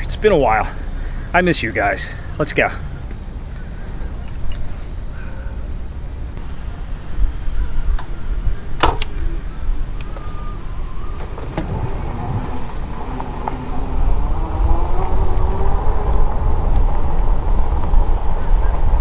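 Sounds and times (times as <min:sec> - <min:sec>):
wind rushing over microphone: 0:06.3 - 0:19.0.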